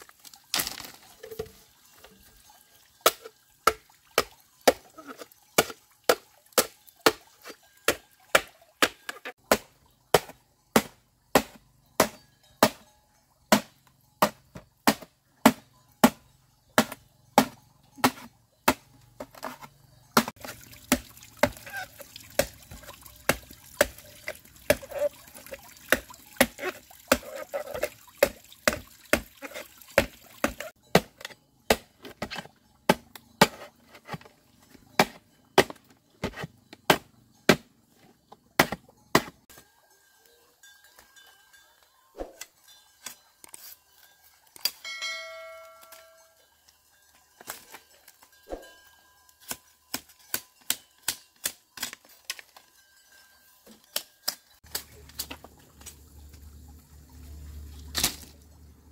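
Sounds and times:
brief ringing tone: 44.9s - 46.4s.

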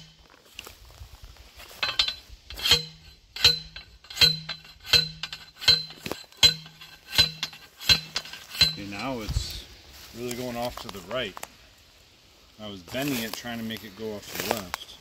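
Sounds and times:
metal post driver clanks: 1.6s - 9.5s.

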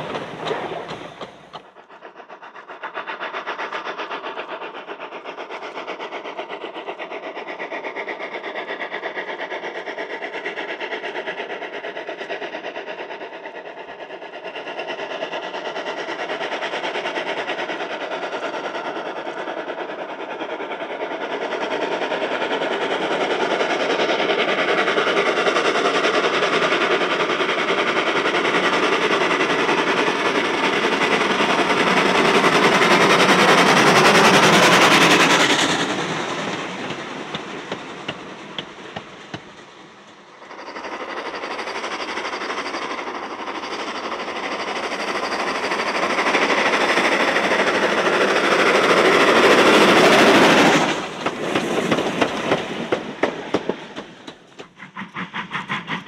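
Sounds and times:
wheels clicking over rail joints: 0.0s - 2.0s, 22.4s - 56.0s
steam locomotive passing: 0.0s - 56.0s.

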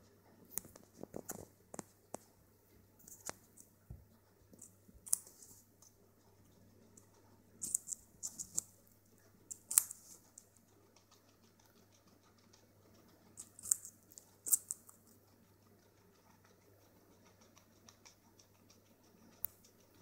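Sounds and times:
pet crunching carrot: 4.5s - 20.0s.

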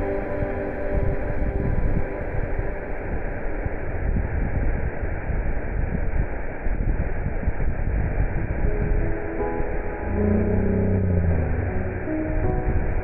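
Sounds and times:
waterfall rushing: 9.2s - 13.0s.

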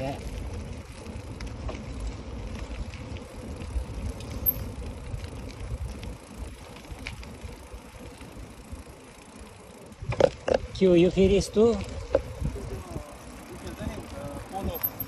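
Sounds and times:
bicycle rattles and clicks: 0.0s - 15.0s
bicycle tyre noise: 0.0s - 15.0s
wind on microphone: 10.0s - 14.8s.

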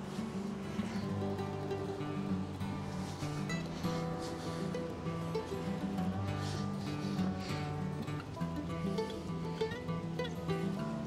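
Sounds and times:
plucked guitar music: 0.0s - 11.0s.

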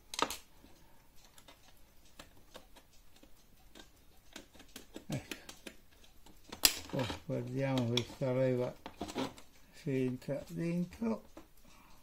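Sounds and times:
mechanical clock ticking: 0.0s - 12.0s.

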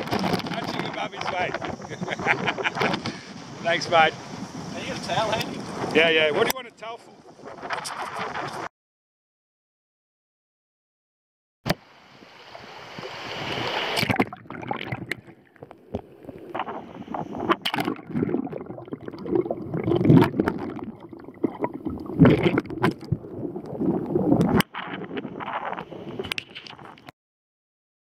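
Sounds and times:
water sloshing and gurgling: 11.7s - 27.1s
water splashes: 11.7s - 27.1s.

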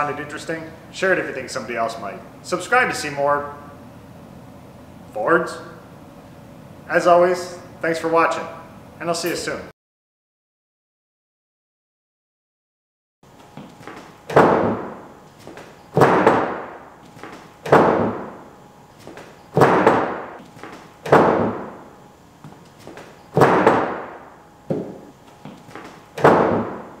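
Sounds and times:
loud thumps on car hood: 14.3s - 15.0s, 16.0s - 16.7s, 17.6s - 18.4s, 19.6s - 20.4s, 21.0s - 21.8s, 23.4s - 25.1s, 26.2s - 26.9s.

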